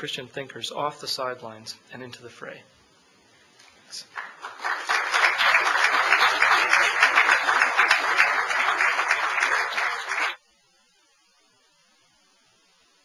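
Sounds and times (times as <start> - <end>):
audience applauding: 4.1 - 10.4.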